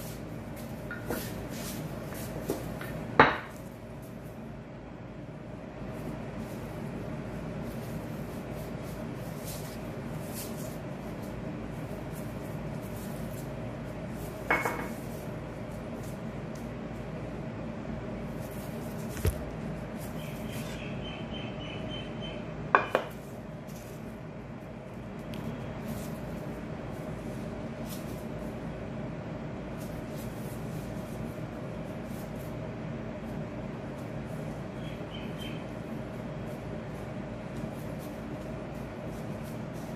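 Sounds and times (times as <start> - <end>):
low background hum: 0.0 - 39.9
cup clinking on countertop: 14.5 - 14.9
soft clicks of hands handling dough: 25.1 - 26.2.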